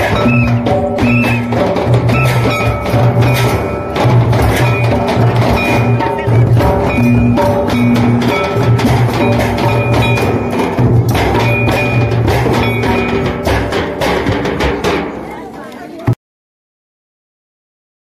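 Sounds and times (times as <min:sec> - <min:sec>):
held melodic line: 0:00.0 - 0:13.6
hand drums in folk rhythm: 0:00.0 - 0:16.2.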